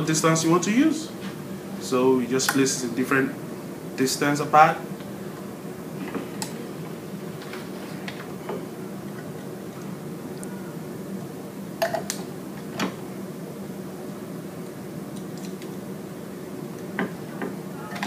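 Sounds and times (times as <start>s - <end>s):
steady low hum: 0.0s - 18.0s.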